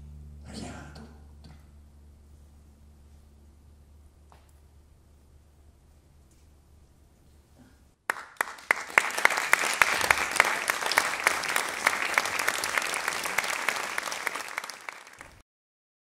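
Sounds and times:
audience applauding: 8.1s - 15.4s.

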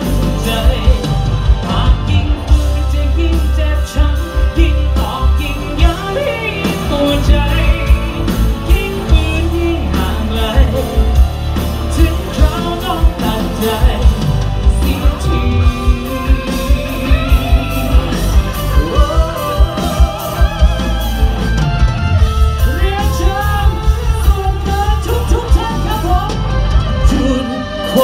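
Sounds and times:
man singing into microphone: 0.0s - 21.3s, 22.6s - 28.0s
live pop-rock band playing: 0.0s - 28.0s.

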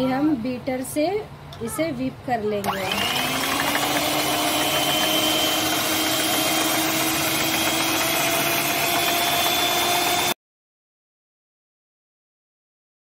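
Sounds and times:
electric hand mixer whining: 2.6s - 10.4s.

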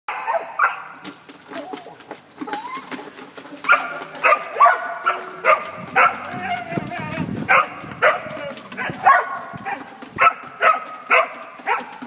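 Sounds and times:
dog whining: 0.1s - 4.0s
dog barking sharply: 3.7s - 6.2s, 7.5s - 12.0s.

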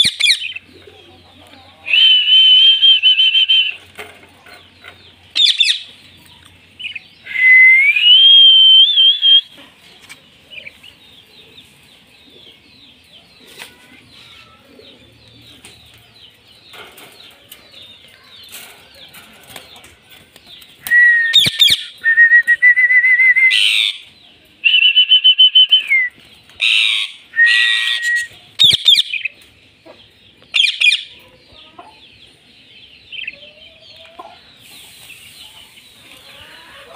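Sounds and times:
parrots calling shrilly: 23.5s - 24.1s, 26.6s - 29.3s.

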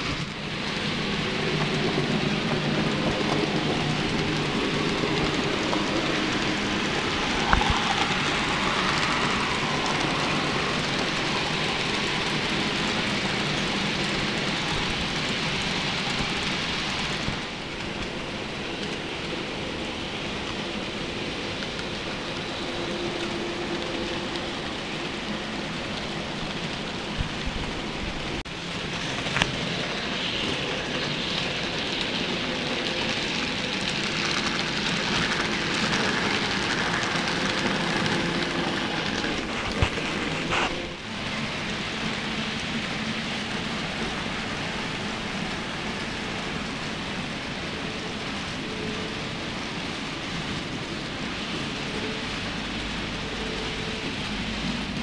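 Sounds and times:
model train wheels rattling on track: 21.4s - 45.6s.

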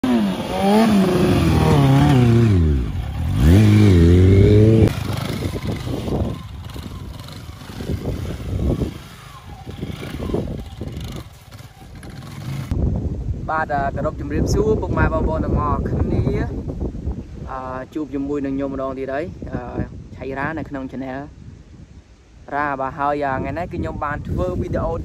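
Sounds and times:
small motorcycle engine revving: 0.0s - 12.8s.

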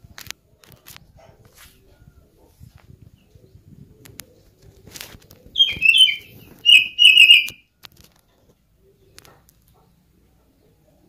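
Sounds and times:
faint rustles: 0.0s - 6.7s
bird calling cat-like notes: 5.6s - 7.6s.

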